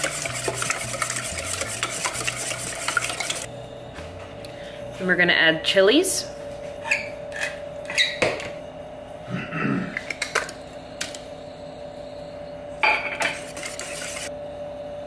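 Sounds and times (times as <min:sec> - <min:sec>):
wire whisk beating in bowl: 0:00.0 - 0:03.5.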